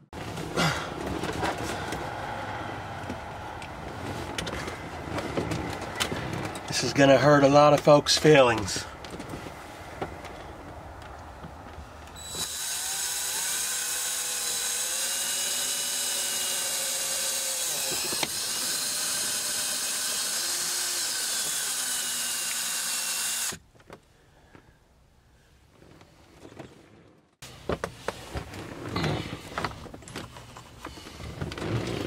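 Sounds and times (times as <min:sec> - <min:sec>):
cordless drill boring plastic: 0:12.2 - 0:23.6.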